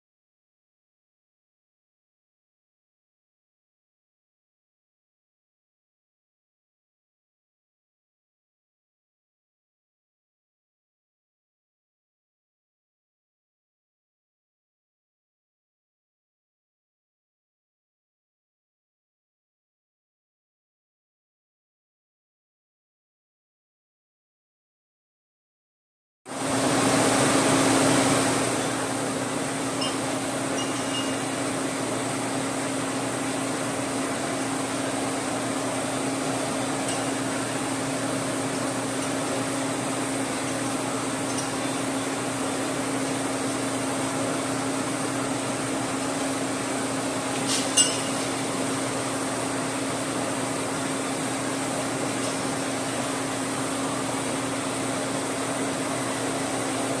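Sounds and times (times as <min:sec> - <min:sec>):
machinery humming: 0:26.3 - 0:57.0
metallic clink: 0:47.8 - 0:48.2.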